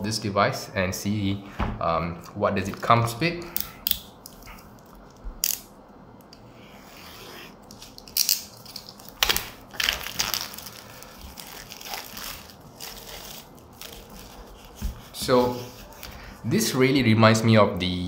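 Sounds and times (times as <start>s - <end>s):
cardboard and plastic packaging rustling: 7.7s - 16.4s.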